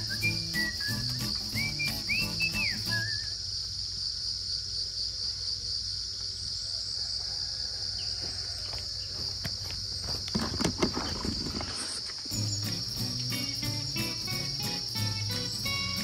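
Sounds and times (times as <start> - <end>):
crickets chirring: 0.0 - 16.0
rustles and knocks: 10.2 - 12.3.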